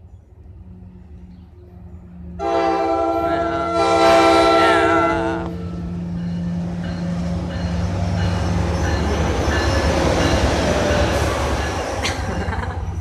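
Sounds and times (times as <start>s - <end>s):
train low rumble: 0.0s - 13.0s
locomotive air horn: 2.4s - 5.8s.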